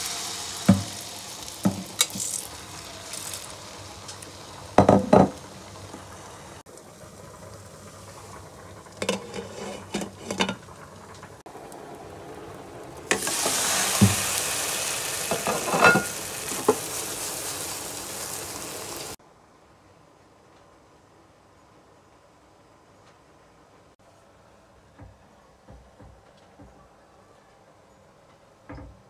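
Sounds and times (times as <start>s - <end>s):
omelette sizzling in a pan: 0.0s - 19.2s
spatula scraping and tapping pan: 9.0s - 10.6s.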